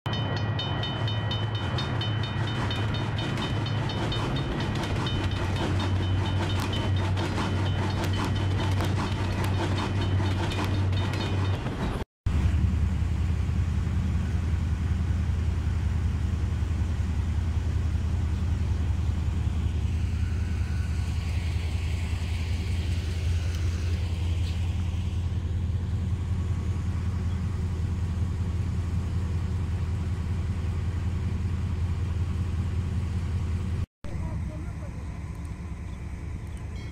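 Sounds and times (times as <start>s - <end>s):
railroad crossing bell ringing: 0.1s - 12.0s, 14.9s - 32.9s, 36.7s - 36.9s
low rumble: 0.2s - 36.8s.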